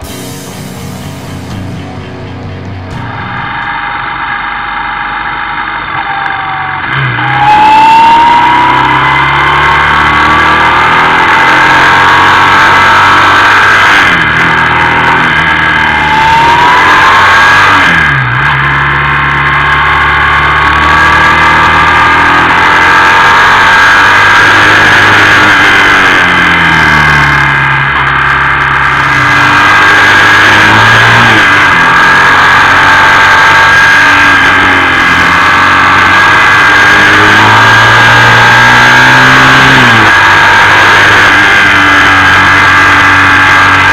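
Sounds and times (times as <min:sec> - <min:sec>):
motorcycle engine accelerating: 0:00.0 - 0:43.9
wind and road noise: 0:02.3 - 0:43.9.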